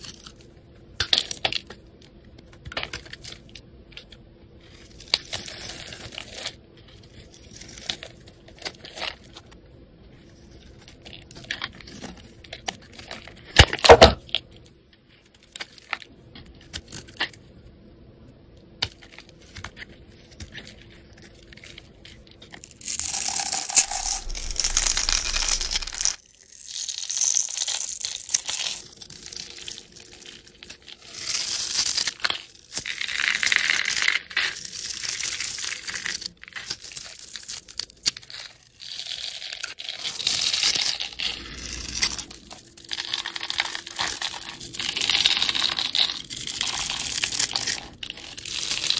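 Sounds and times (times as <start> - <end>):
knife crunching through soap: 4.0 - 9.4, 18.8 - 48.9.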